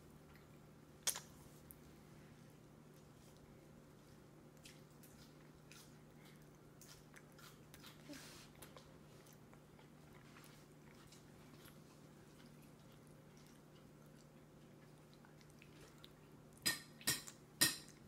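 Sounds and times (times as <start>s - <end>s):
low room hum: 0.0s - 18.0s
mouth clicks and smacks: 0.3s - 1.4s
toddler chewing: 0.3s - 1.8s, 2.5s - 18.0s.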